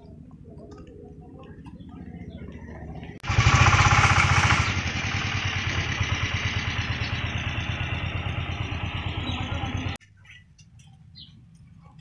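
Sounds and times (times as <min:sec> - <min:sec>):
small vehicle engine running: 0:03.2 - 0:10.0.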